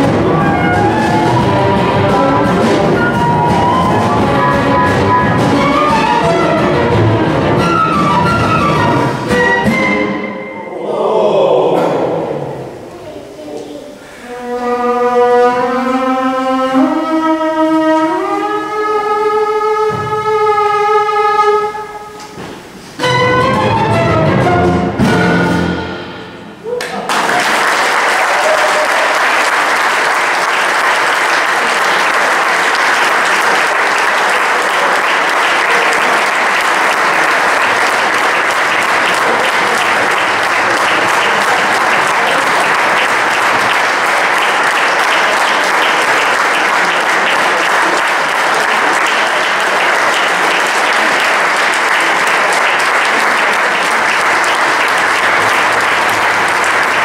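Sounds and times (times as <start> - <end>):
audience applause: 0.0 - 9.6, 26.8 - 57.0
string orchestra note: 0.0 - 10.7, 23.0 - 26.6.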